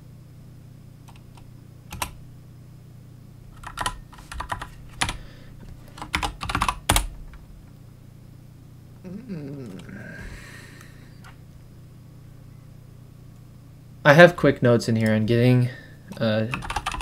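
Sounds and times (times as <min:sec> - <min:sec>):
keyboard typing: 0:01.1 - 0:02.2, 0:03.5 - 0:05.2, 0:05.9 - 0:07.4, 0:16.1 - 0:17.0.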